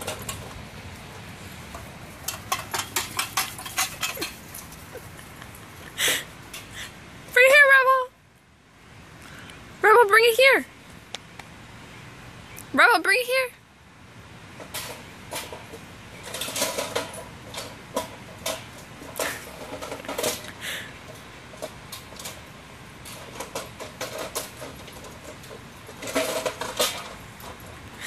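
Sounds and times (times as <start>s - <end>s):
toy truck clattering: 0.0s - 0.9s, 1.6s - 5.4s, 14.6s - 28.0s.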